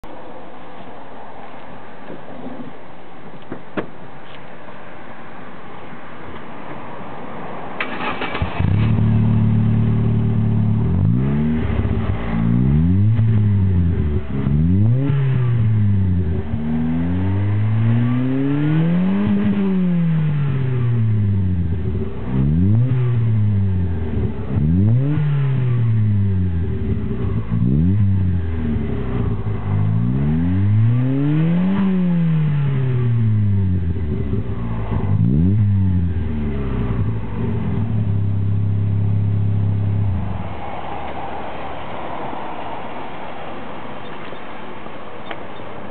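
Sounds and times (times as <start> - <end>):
car engine starting and idling: 7.7 - 41.2
car engine revving: 7.8 - 42.0.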